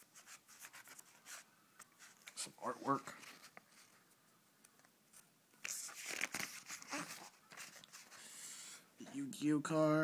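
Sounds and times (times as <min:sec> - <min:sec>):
magazine pages flipping: 0:05.1 - 0:08.2.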